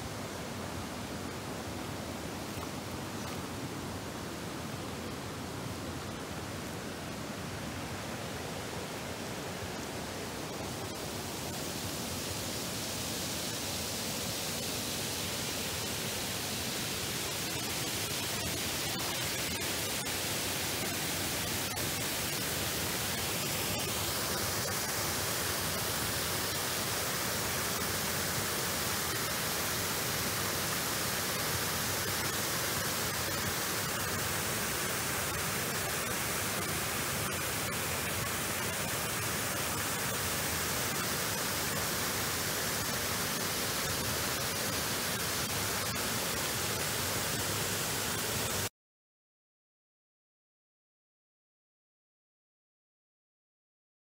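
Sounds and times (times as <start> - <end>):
water rushing over a weir: 7.4 - 48.7.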